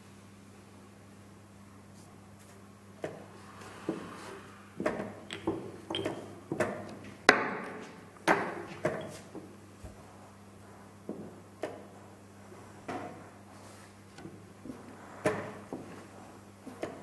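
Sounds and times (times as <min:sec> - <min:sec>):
chess pieces knocking on board: 0:04.9 - 0:09.1.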